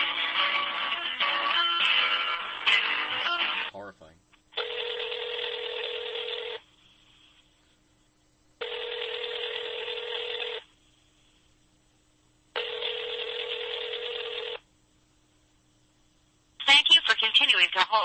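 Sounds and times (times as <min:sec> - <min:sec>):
buzzy telephone ringing tone: 0:04.6 - 0:06.7, 0:08.6 - 0:10.8, 0:12.5 - 0:14.7.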